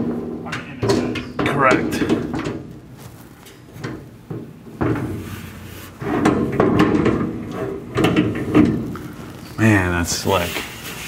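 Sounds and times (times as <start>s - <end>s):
metal hardware clunks and rattles: 0.0s - 2.7s, 3.7s - 5.2s, 6.0s - 9.0s.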